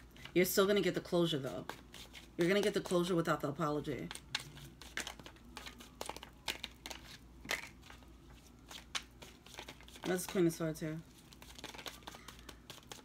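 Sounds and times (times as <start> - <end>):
cards snapping and rustling: 4.0 - 7.9, 11.3 - 13.0.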